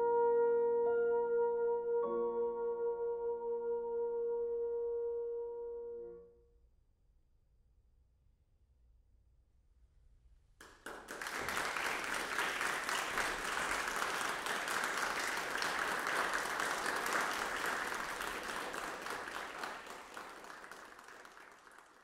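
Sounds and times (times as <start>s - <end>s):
audience applauding: 10.6s - 22.0s.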